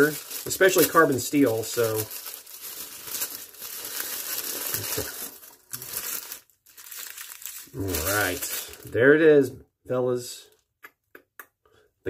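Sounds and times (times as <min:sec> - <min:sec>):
wax paper crinkling: 0:00.0 - 0:09.0.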